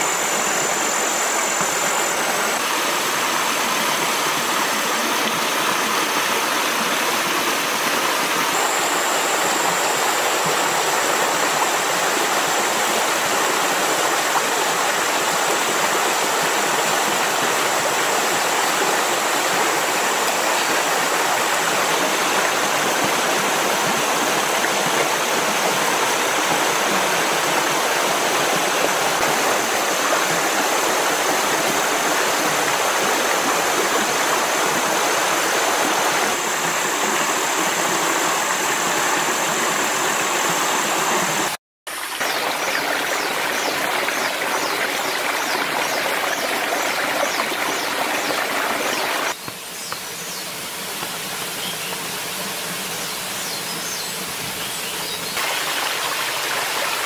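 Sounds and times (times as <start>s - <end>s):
thin high steady tone: 0.0s - 2.6s
rushing flowing water: 0.0s - 57.0s.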